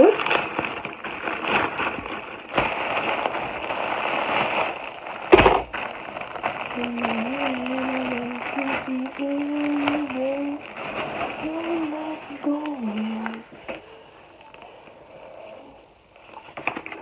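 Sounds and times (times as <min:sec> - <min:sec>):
plastic bag crinkling: 0:00.0 - 0:17.0
person humming: 0:06.8 - 0:10.7, 0:11.4 - 0:13.4.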